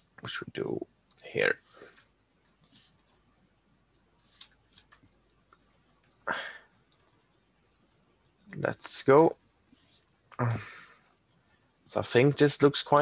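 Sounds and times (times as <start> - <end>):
keyboard keys clicking: 3.9 - 8.1.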